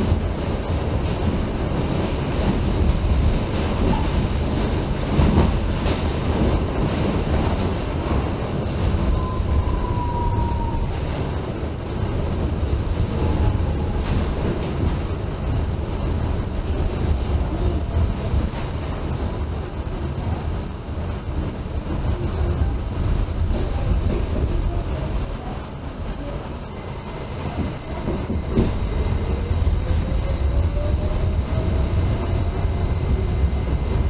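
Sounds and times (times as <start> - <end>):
train rumbling on rails: 0.0 - 34.0
train knock: 27.4 - 30.2.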